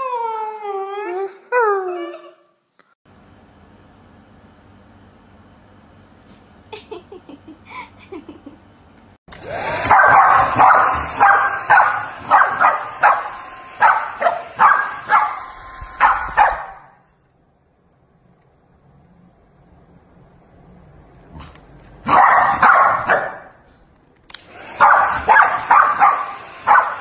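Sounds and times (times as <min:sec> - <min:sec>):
hair dryer hissing: 0:09.3 - 0:16.8, 0:24.3 - 0:27.0
dog barking: 0:09.8 - 0:17.0, 0:22.0 - 0:23.6, 0:24.8 - 0:27.0.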